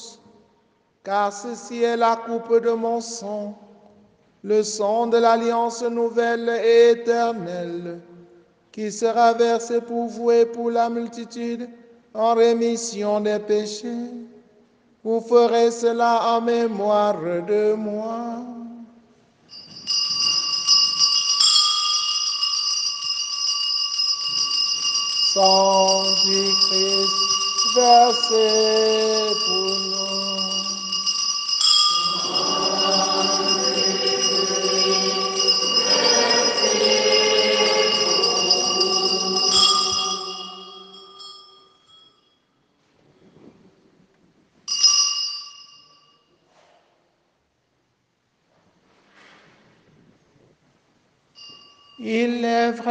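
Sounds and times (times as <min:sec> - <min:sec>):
altar bells ringing: 0:19.5 - 0:42.5, 0:44.7 - 0:46.3, 0:51.3 - 0:52.4.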